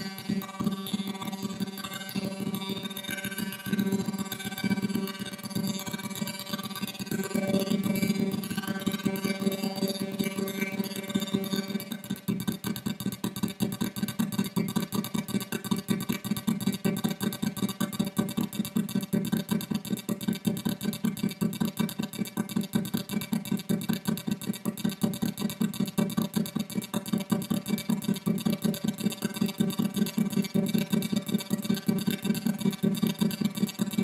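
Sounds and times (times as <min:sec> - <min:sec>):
low hum: 0:00.0 - 0:12.3
rapid pulsing buzz: 0:00.0 - 0:34.0.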